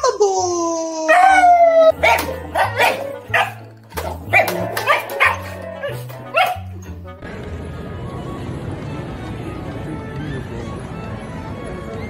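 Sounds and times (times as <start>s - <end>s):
dog barking sharply: 2.0s - 6.9s.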